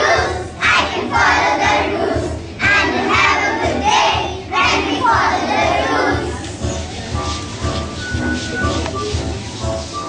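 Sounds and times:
children singing in unison: 0.0 - 6.4.

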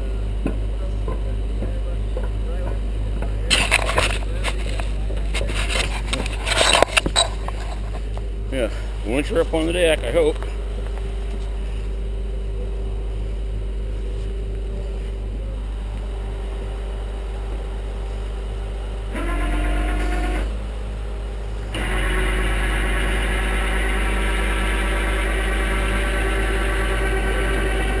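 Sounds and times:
tow truck engine revving: 19.1 - 28.0.

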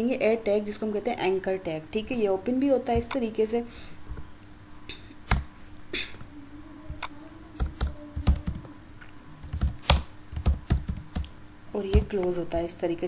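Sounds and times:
typing on computer keyboard: 7.0 - 8.7, 9.4 - 11.3.

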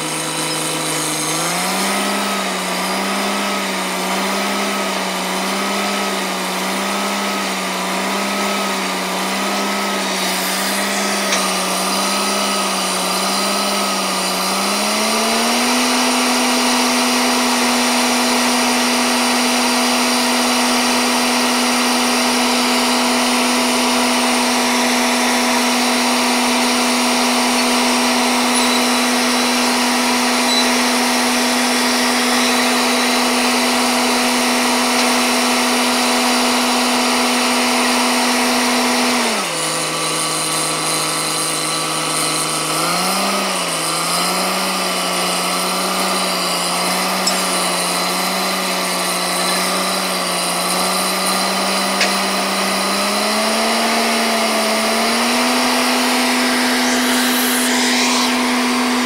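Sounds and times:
drilling rig engine: 0.0 - 59.0.

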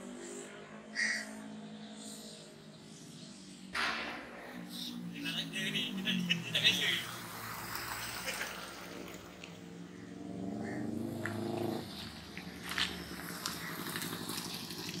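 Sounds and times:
motorcycle engine accelerating: 4.0 - 15.0.

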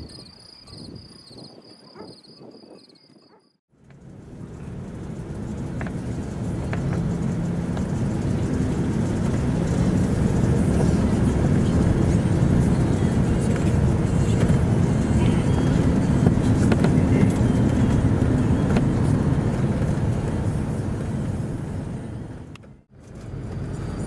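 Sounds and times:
car engine and road rumble: 3.3 - 24.0.

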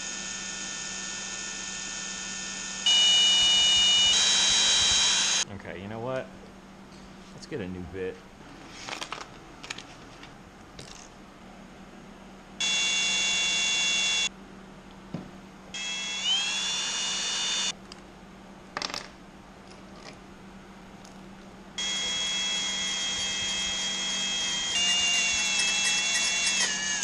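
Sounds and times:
cordless drill boring steel: 0.0 - 5.4, 15.8 - 17.7, 21.8 - 27.0.

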